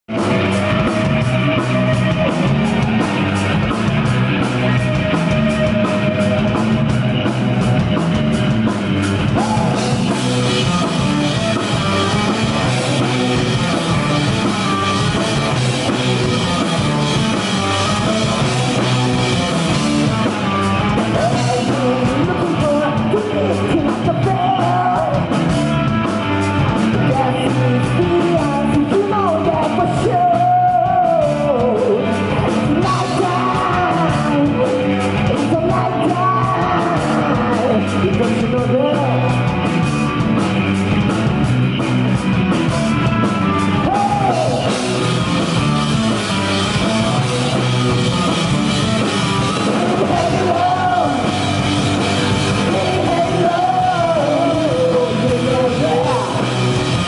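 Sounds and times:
bass guitar: 0.0s - 57.0s
drum kit: 0.0s - 57.0s
electric guitars: 0.0s - 57.0s.

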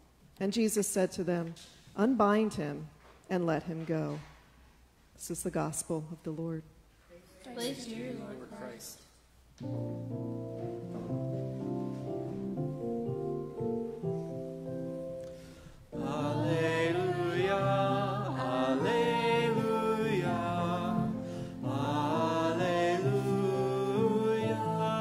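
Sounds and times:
person singing slow melody: 16.0s - 25.0s.

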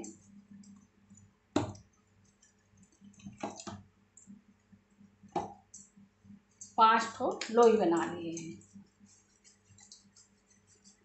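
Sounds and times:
dough squishing: 0.0s - 11.0s
dough thumping in steel bowl: 1.6s - 1.8s.

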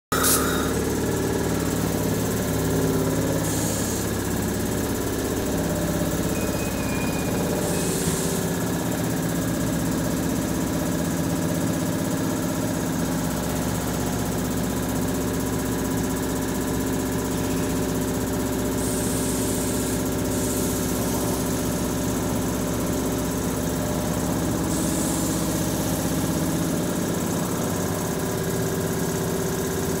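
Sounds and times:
electric train humming: 0.1s - 10.5s
short bursts of hiss: 0.2s - 0.8s, 3.4s - 4.2s, 18.8s - 21.1s.

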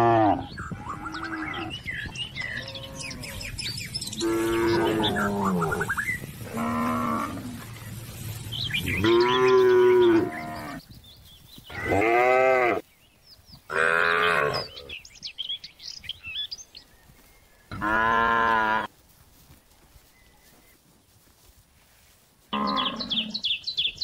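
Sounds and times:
cattle mooing: 4.2s - 7.9s, 8.9s - 10.8s.

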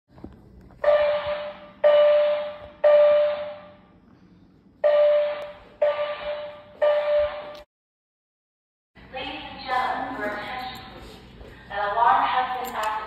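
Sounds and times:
fire alarm buzzing horn blasts: 0.8s - 3.8s, 4.8s - 7.6s.

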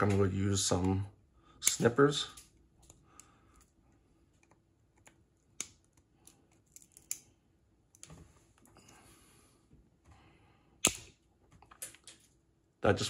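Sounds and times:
sharp snap of plastic tab: 10.8s - 11.1s.

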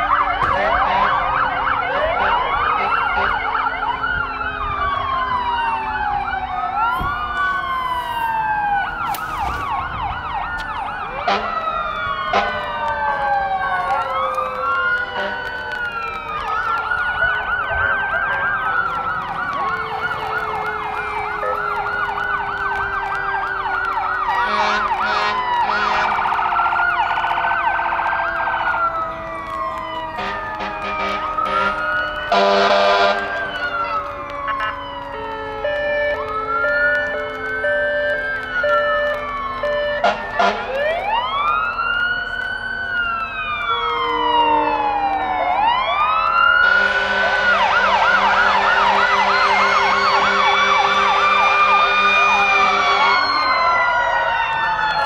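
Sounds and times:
low siren tone sinking: 0.0s - 55.0s
sirens wailing: 0.0s - 55.0s
sirens yelping: 0.0s - 55.0s
horn blasts: 11.2s - 11.6s, 24.3s - 26.4s, 30.2s - 33.8s, 40.0s - 40.8s, 46.6s - 53.1s.

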